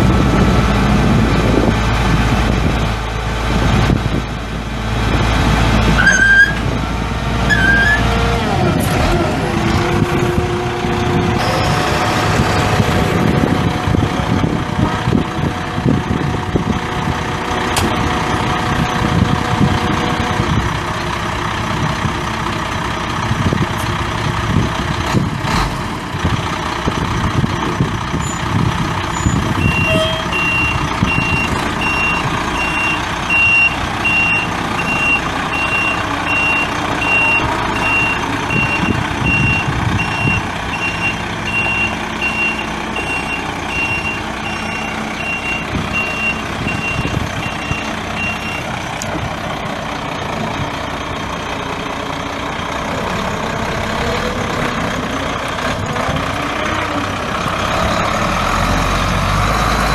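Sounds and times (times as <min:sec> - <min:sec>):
truck diesel engine running: 0:00.0 - 0:59.9
truck backup alarm beeping: 0:29.1 - 0:48.8.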